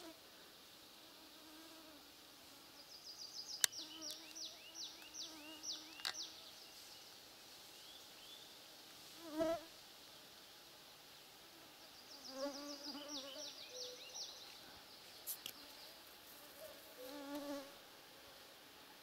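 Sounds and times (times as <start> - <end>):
small bird singing: 2.8 - 7.1, 11.8 - 16.0
sharp clicks: 3.6 - 4.4.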